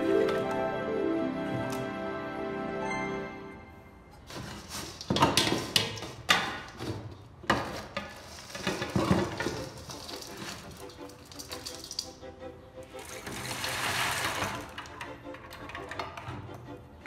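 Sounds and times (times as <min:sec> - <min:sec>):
soil pouring into metal pan: 0:09.3 - 0:12.2, 0:13.0 - 0:14.7.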